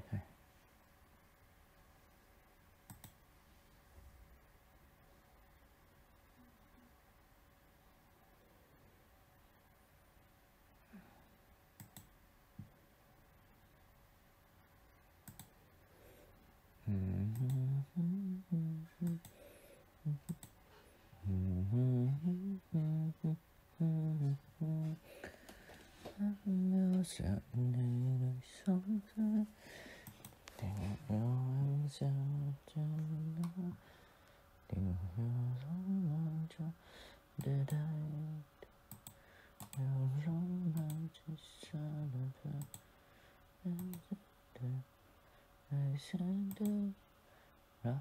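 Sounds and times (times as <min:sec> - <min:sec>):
computer mouse clicks: 0:02.9 - 0:03.2, 0:11.8 - 0:12.2, 0:15.2 - 0:15.6, 0:17.3 - 0:17.6, 0:20.2 - 0:20.6, 0:30.0 - 0:30.6, 0:38.9 - 0:39.8, 0:40.8 - 0:41.0, 0:42.6 - 0:42.9, 0:43.8 - 0:44.1
mouse clicks: 0:02.9 - 0:03.2, 0:11.8 - 0:12.1, 0:15.2 - 0:15.6
person humming a tune: 0:16.8 - 0:19.4, 0:20.0 - 0:20.4, 0:21.2 - 0:25.1, 0:26.0 - 0:29.5, 0:30.6 - 0:33.8, 0:34.7 - 0:36.8, 0:37.4 - 0:38.6, 0:39.7 - 0:42.8, 0:43.6 - 0:44.9, 0:45.7 - 0:47.0.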